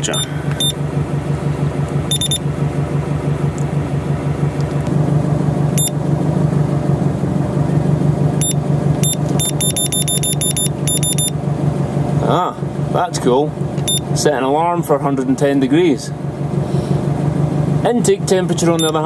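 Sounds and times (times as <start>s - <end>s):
car engine idling: 0.0s - 19.0s
short high electronic beeps: 2.1s - 2.4s, 8.4s - 11.3s.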